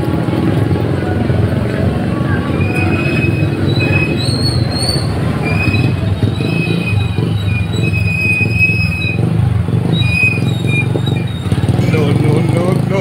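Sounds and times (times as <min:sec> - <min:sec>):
engine low rumble: 0:00.0 - 0:13.0
high-pitched squeals: 0:02.0 - 0:12.0.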